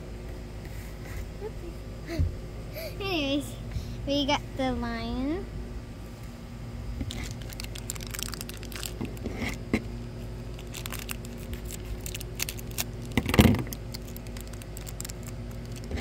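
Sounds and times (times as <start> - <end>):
plastic packaging crinkling: 7.0 - 9.6, 10.4 - 16.0.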